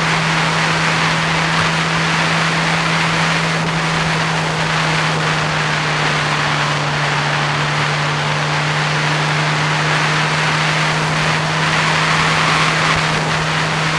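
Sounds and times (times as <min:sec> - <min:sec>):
motorcycle engine cruising: 0:00.0 - 0:13.9
wind noise on microphone: 0:00.0 - 0:13.9.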